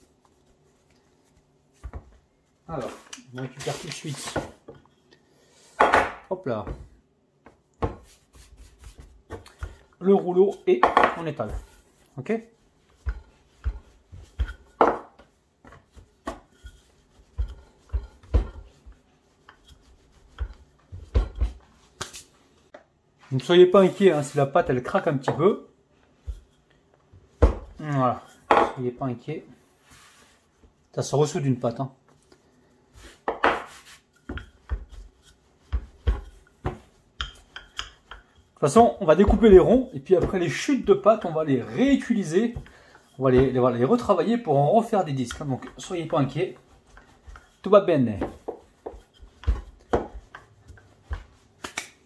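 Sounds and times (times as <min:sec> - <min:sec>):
rolling pin thudding on dough: 0:01.3 - 0:02.2, 0:05.8 - 0:12.0, 0:12.6 - 0:22.2, 0:26.2 - 0:28.8, 0:32.9 - 0:52.0.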